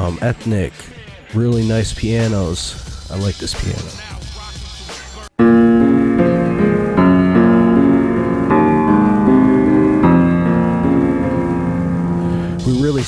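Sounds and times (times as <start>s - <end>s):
piano chords: 5.4s - 13.0s.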